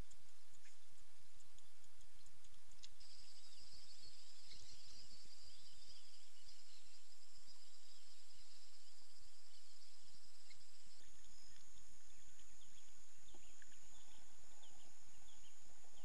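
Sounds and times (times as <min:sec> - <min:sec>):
high insect chorus: 0:00.0 - 0:16.0.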